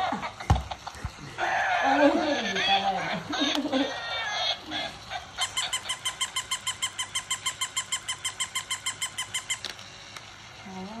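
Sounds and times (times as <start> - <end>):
toy dog electronic yaps: 3.9 - 9.8.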